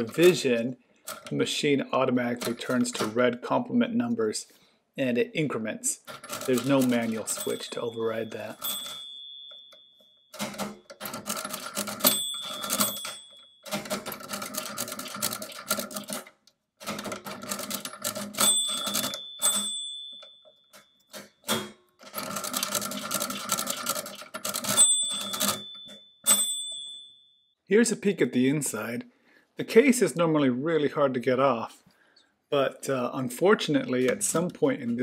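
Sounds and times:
mechanical calculator crank clattering: 0.0 - 1.4, 6.1 - 9.2, 10.4 - 26.9
calculator bell ringing: 6.2 - 16.1, 17.5 - 21.4, 22.1 - 27.6.

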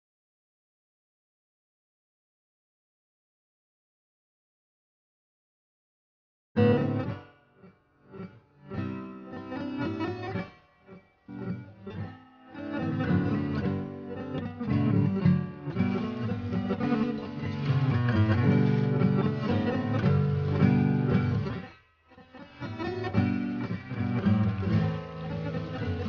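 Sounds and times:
guitar-led background music: 6.6 - 26.0.

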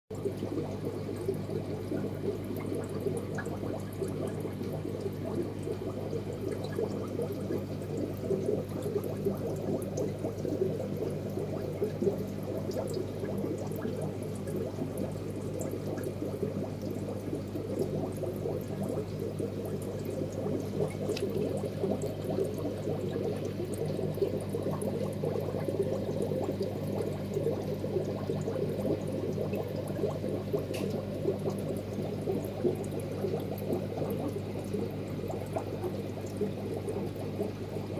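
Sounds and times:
low steady hum: 0.1 - 37.9
water bubbling and gurgling: 0.1 - 37.9.

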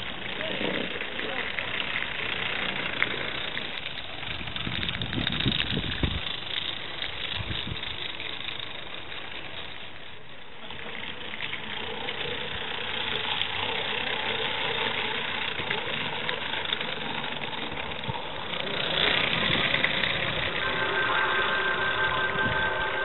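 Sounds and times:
rapid light ticking of engine: 0.0 - 23.0
steam hissing: 12.2 - 23.0.

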